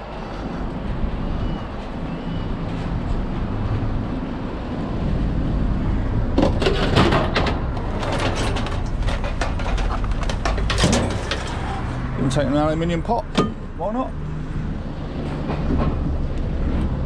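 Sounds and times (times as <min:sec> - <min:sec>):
steady low rumble: 0:00.0 - 0:13.8
scrap metal clanking: 0:06.5 - 0:12.0.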